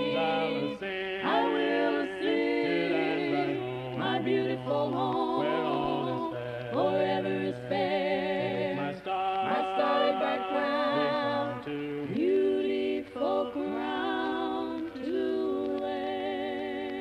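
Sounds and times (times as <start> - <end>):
voices singing a hymn in harmony: 0.0 - 17.0.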